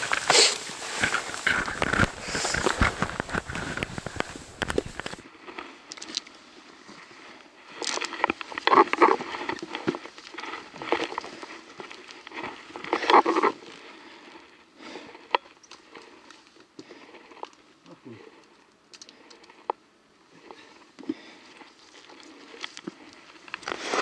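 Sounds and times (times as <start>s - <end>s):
footsteps on rock: 0.0s - 5.3s.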